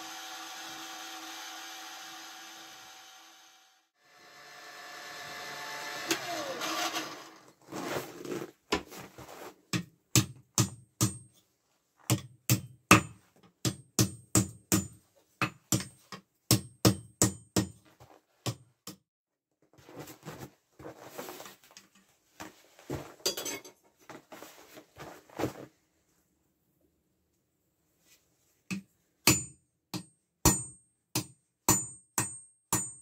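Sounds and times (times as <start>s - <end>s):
hammer striking iron on anvil: 29.2s - 33.0s.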